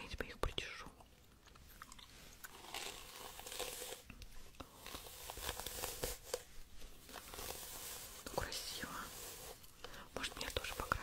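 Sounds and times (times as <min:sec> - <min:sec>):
crinkling and scratching objects: 0:00.0 - 0:11.0.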